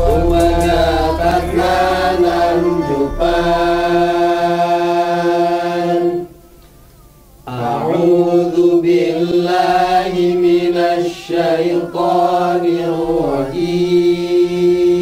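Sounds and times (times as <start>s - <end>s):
held low drone: 0.0s - 6.6s
melodic chanting: 0.0s - 15.0s.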